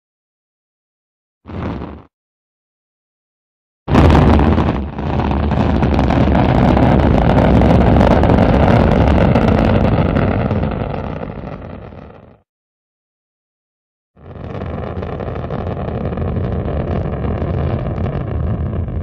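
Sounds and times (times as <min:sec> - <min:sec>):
rocket engine roar: 0:03.9 - 0:12.2, 0:14.2 - 0:19.0.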